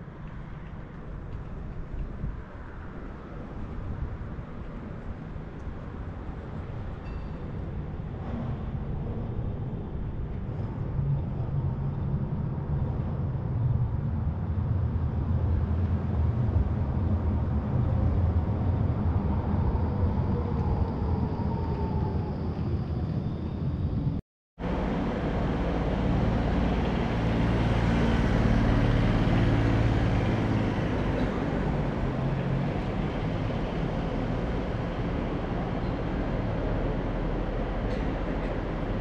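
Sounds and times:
tram rumble: 0.0s - 39.0s
tram motor whine: 18.6s - 39.0s.

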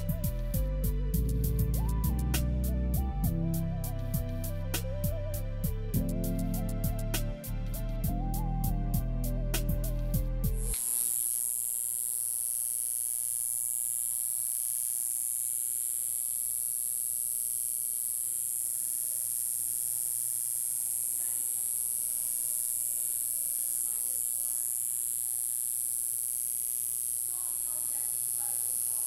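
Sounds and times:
high-pitched buzz: 9.2s - 29.0s
electrical hum: 10.2s - 29.0s.

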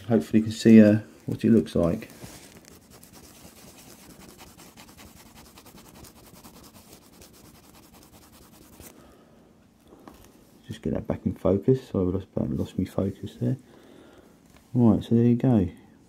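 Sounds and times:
brush scrubbing circuit board: 2.7s - 8.9s.

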